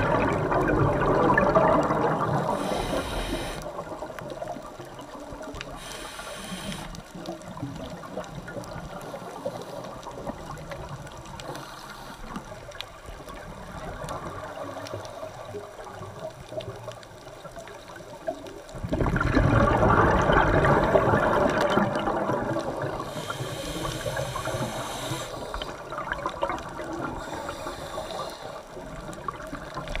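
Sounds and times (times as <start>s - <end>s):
scuba exhaust bubbles rushing: 0.0s - 11.6s, 18.7s - 30.0s
muffled underwater noise: 0.0s - 30.0s.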